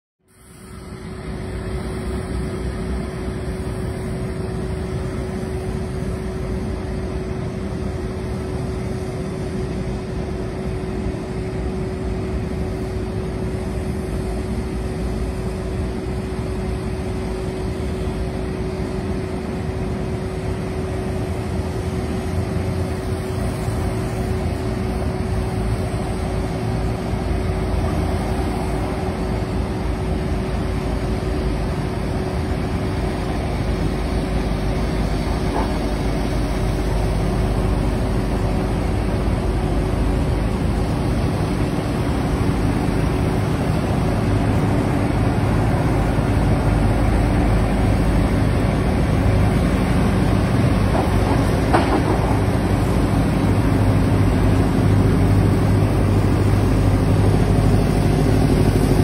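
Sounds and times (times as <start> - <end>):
steady hum: 0.2 - 59.0
heavy trucks passing: 20.6 - 59.0.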